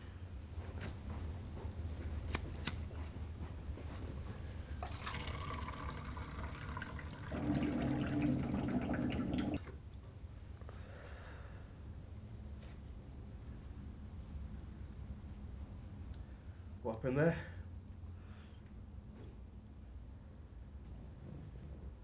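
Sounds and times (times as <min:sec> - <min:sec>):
water pouring into plastic container: 0:04.8 - 0:09.7.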